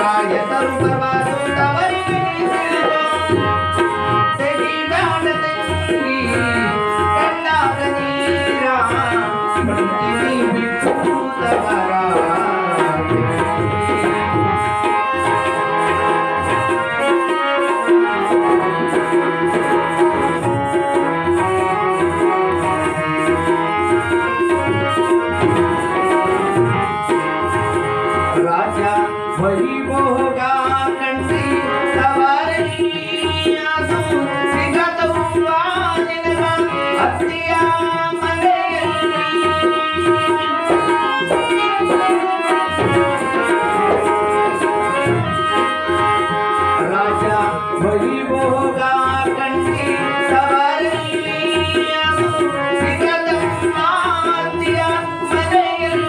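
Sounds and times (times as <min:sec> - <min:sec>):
hand drum percussion: 0:00.0 - 0:56.0
harmonium melody: 0:00.0 - 0:56.0.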